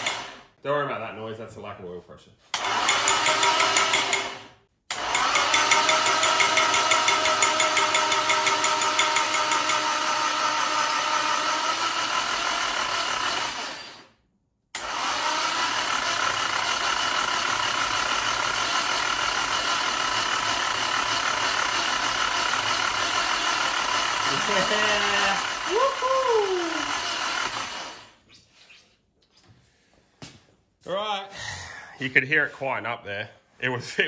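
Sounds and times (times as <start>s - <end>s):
engine cranking on starter: 2.5s - 7.6s, 14.8s - 25.8s.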